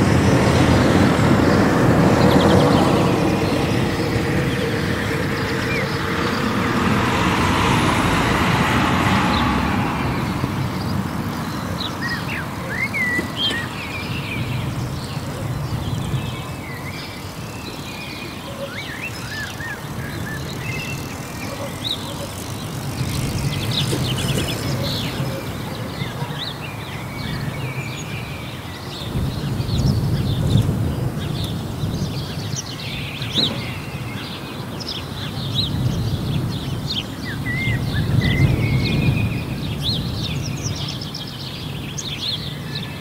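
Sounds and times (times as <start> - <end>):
rushing noise: 0.0 - 13.0
sparrows chirping: 0.0 - 43.0.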